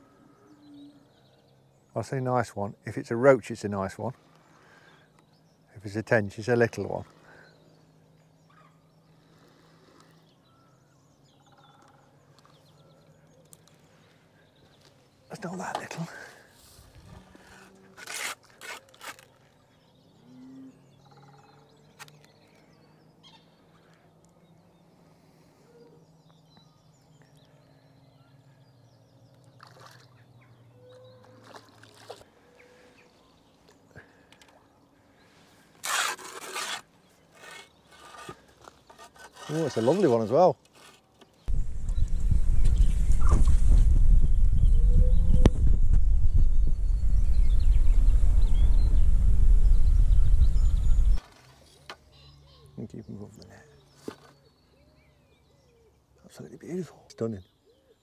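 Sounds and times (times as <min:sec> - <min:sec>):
fish thrashing in water: 0:31.3 - 0:32.3
faint low hum: 0:41.5 - 0:52.6
faint bird chirps: 0:44.2 - 0:58.0.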